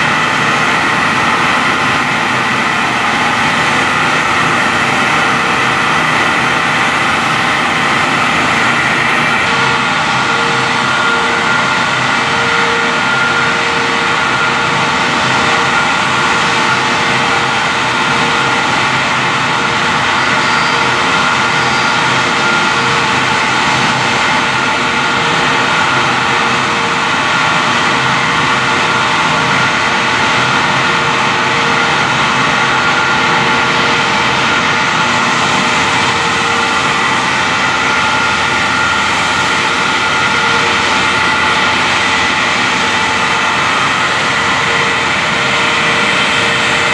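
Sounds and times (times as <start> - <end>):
spray booth extraction roar: 0.0 - 46.9
steady hum: 0.0 - 46.9.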